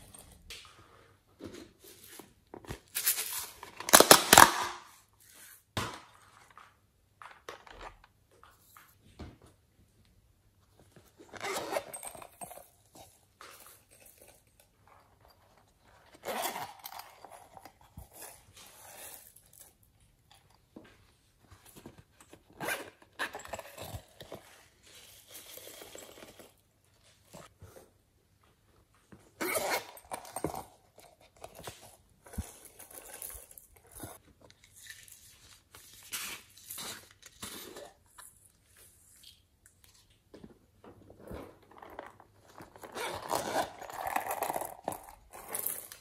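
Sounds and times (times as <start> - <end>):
silicone toy cases rustling and clicking: 1.4 - 4.8, 10.7 - 27.9, 29.2 - 39.0, 39.9 - 46.0.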